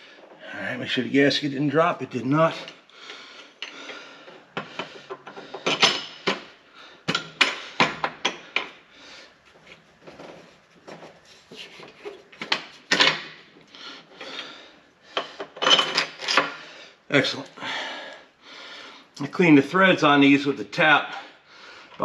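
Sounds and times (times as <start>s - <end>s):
metal tools scraping and clinking: 15.2s - 16.6s.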